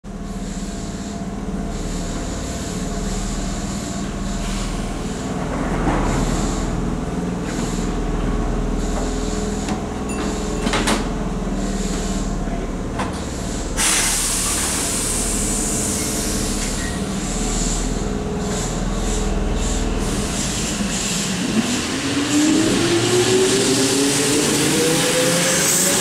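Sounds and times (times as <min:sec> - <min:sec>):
hiss: 0:13.2 - 0:22.6.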